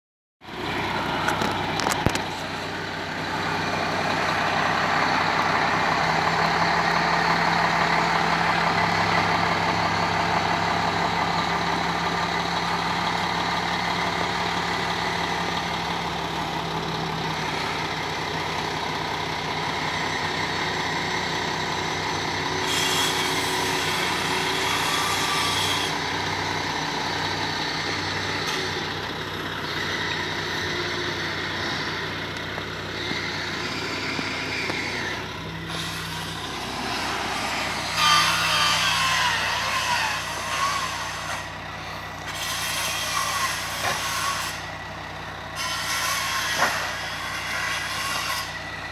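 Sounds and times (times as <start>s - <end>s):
truck engine running: 0.4s - 48.9s.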